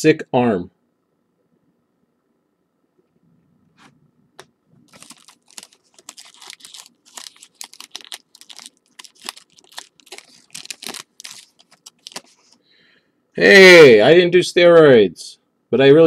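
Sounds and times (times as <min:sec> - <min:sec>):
card wrappers crinkling: 0:04.8 - 0:12.6.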